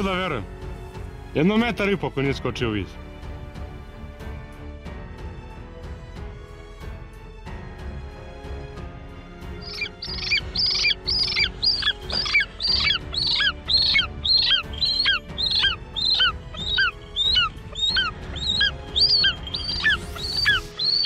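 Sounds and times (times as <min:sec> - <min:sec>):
eagle high-pitched calls: 0:09.6 - 0:21.0.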